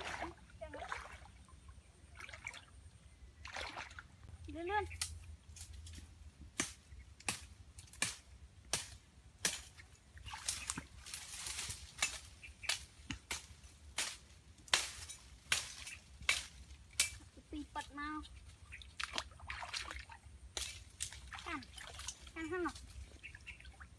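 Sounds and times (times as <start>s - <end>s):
leaves rustling: 4.6s - 19.0s, 20.0s - 23.8s
dry twigs snapping: 10.4s - 17.2s.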